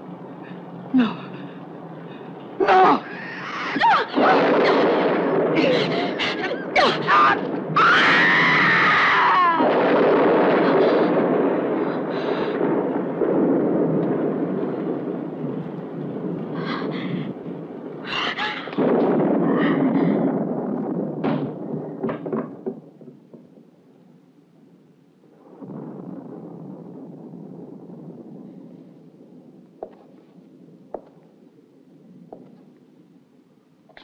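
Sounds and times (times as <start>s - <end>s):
loud rumbling crash: 2.2s - 23.6s
woman screaming: 2.6s - 4.9s, 5.6s - 9.7s
sharp knocks and clatters: 21.2s - 23.5s.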